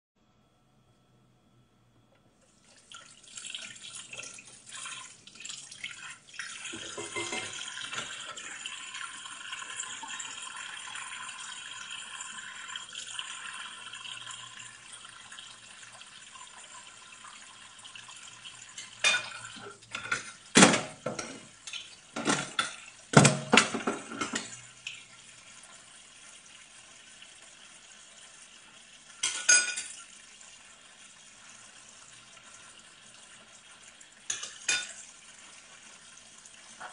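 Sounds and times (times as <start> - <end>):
dishes and cutlery clattering: 6.7 - 8.2, 18.8 - 25.0, 29.2 - 30.0, 34.3 - 35.0
tap running into a sink: 6.7 - 8.3, 18.8 - 25.0.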